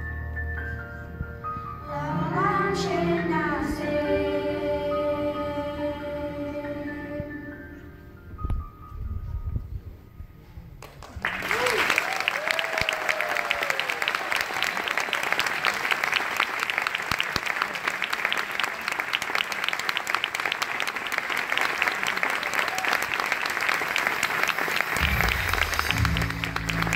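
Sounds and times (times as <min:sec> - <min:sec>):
audience applauding: 0:10.8 - 0:26.9
low held musical notes: 0:25.0 - 0:26.9.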